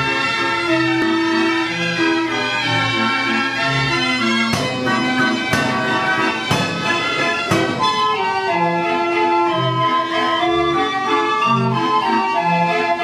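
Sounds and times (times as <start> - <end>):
street organ pipes playing: 0.0 - 13.0
organ percussion strikes: 2.8 - 9.6.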